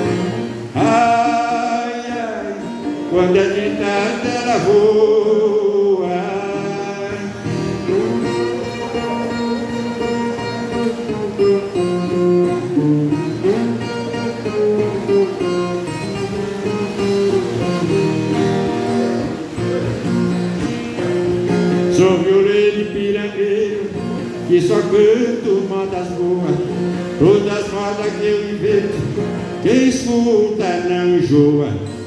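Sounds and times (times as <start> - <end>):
plucked guitar melody with strummed chords: 0.0 - 32.0.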